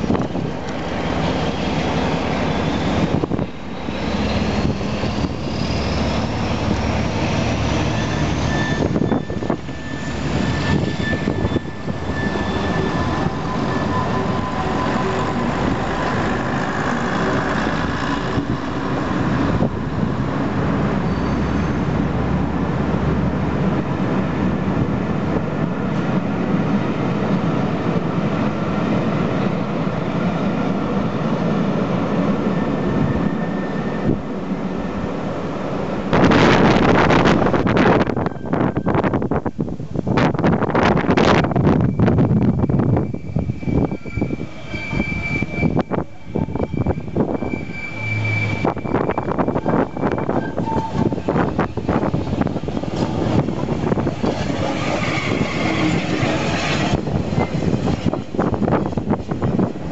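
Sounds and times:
train wheels rumbling on rails: 0:00.0 - 0:59.9
thin high squeals: 0:07.7 - 0:16.1, 0:41.7 - 0:52.0, 0:54.6 - 0:57.8.

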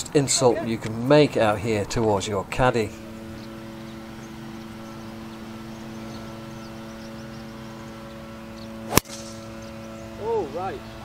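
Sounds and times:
low hum of held tones: 0:00.0 - 0:11.0
golf club striking ball: 0:08.6 - 0:09.7.

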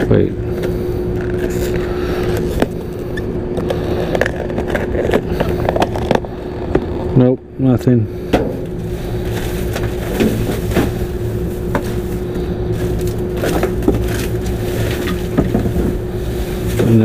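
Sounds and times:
trash bags and cardboard rustling: 0:08.4 - 0:17.0.

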